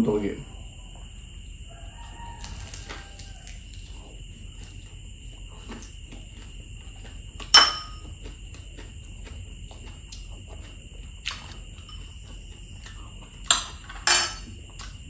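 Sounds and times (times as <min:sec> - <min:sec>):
steady high-pitched whine: 0:00.0 - 0:15.0
crunchy bites of fried food: 0:01.7 - 0:13.8, 0:14.4 - 0:15.0
fork clinking on plate: 0:07.4 - 0:08.0, 0:13.5 - 0:14.5.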